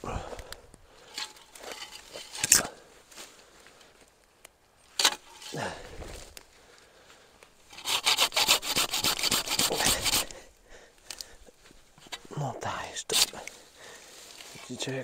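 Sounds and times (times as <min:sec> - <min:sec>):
hand saw cutting wood: 0:07.7 - 0:10.4, 0:13.1 - 0:13.4.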